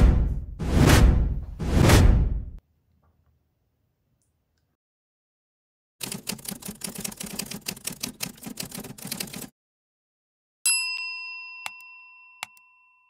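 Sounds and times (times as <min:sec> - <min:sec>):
rapid key clicks: 0:06.0 - 0:09.5
ringing ding: 0:10.7 - 0:13.0.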